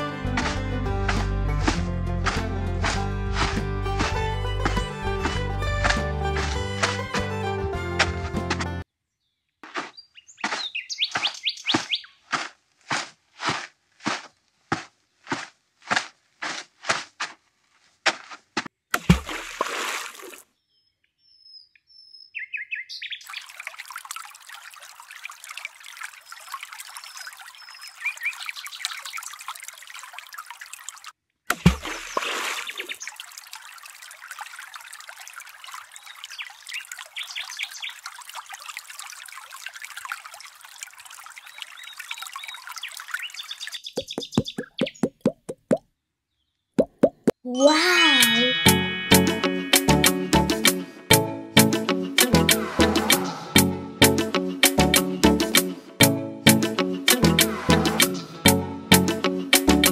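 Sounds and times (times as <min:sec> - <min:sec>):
small hoe scraping sand: 0:00.0 - 0:07.3, 0:09.6 - 0:18.7
birdsong: 0:08.9 - 0:12.3, 0:20.5 - 0:23.6, 0:26.2 - 0:29.3, 0:35.9 - 0:38.1, 0:41.4 - 0:46.8
trickling water: 0:19.0 - 0:20.5, 0:22.9 - 0:45.8
dull thumps: 0:44.0 - 0:45.8.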